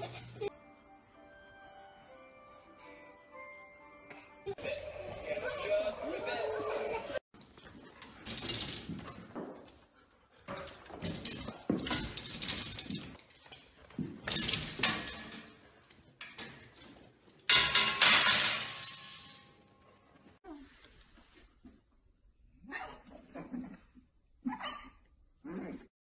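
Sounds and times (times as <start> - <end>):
metal gate rattling and clanking: 7.4 - 9.8, 10.4 - 20.2.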